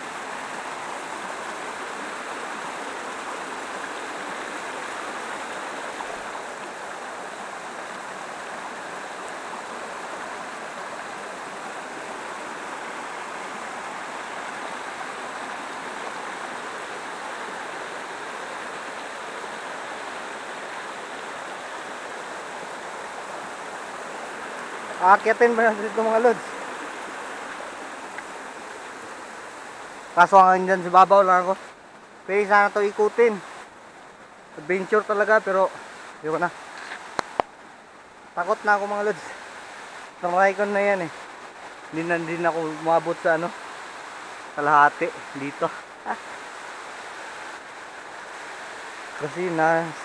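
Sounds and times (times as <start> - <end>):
water cascading over rocks: 0.0 - 50.0.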